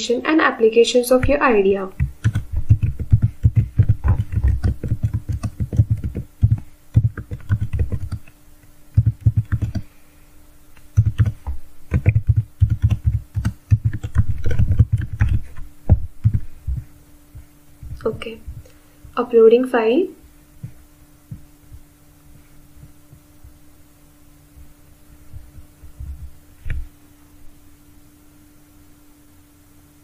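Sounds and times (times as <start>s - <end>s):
faint steady hum: 0.0s - 30.0s
typing on a keyboard: 2.0s - 8.3s, 9.0s - 9.8s, 11.0s - 15.6s.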